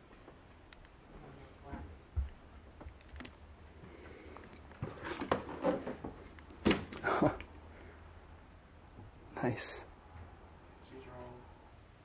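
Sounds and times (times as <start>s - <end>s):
cardboard scraping and rustling: 4.7s - 6.9s
cardboard thump: 6.6s - 7.0s.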